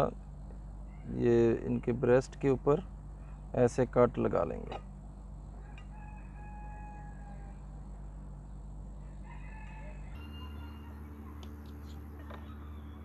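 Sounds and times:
low steady hum: 0.0s - 13.0s
rooster crowing: 5.5s - 7.9s, 9.0s - 11.5s.

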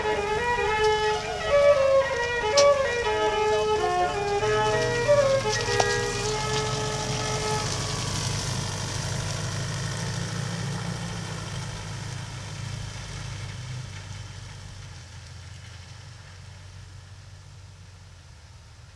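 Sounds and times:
tyres on gravel: 0.0s - 16.7s
suv engine pulling away: 0.0s - 18.9s.

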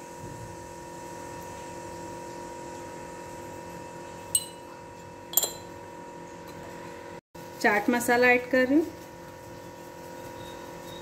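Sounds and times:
light clinks of kitchenware: 4.4s - 4.7s, 5.3s - 5.8s.

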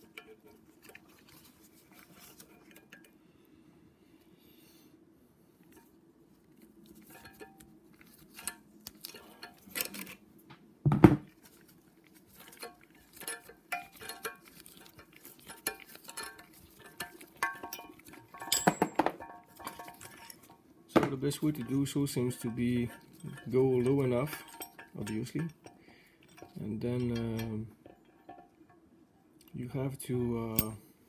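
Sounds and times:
metal tools clinking: 12.4s - 28.5s, 30.4s - 30.9s.

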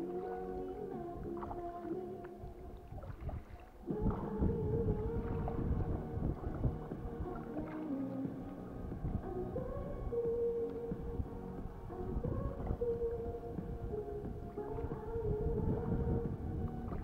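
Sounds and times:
music of long held notes: 0.0s - 17.0s.

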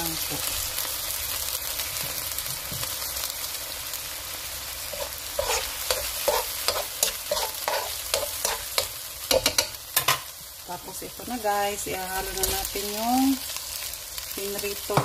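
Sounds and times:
meat sizzling in hot oil: 0.0s - 15.0s
spoon knocking and scraping pan: 4.9s - 10.3s.

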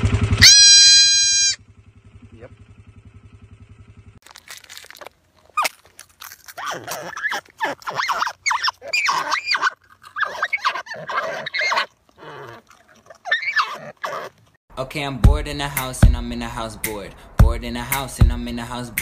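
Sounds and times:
marmots squealing: 0.4s - 1.6s, 6.4s - 14.4s.

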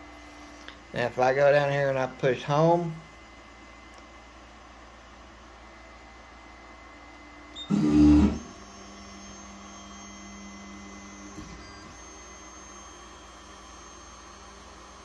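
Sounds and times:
motor hum: 7.5s - 15.0s
stepper motor grinding: 7.6s - 8.8s.

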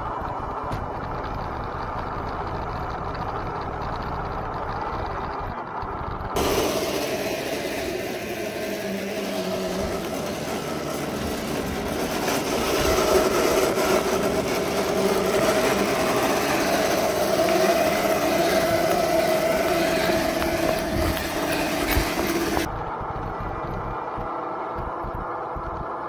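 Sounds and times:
tyre and road noise: 0.0s - 26.0s
electric motor whine: 6.4s - 25.8s.

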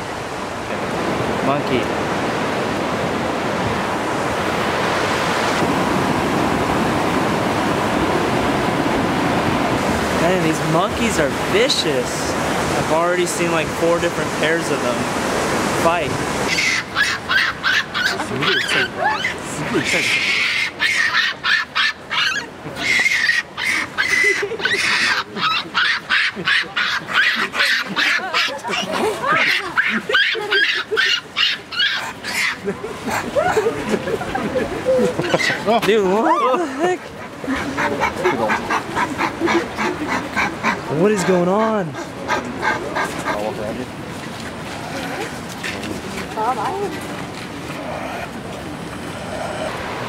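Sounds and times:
stream water rushing: 0.0s - 50.0s
monkeys screaming: 16.4s - 43.5s.

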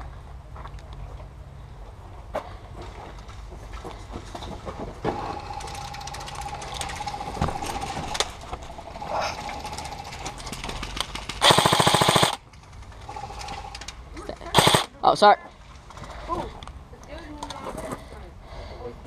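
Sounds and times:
rapid clatter with steady whine: 4.6s - 14.0s
airsoft gun full-auto burst: 11.4s - 12.4s, 14.5s - 14.9s.

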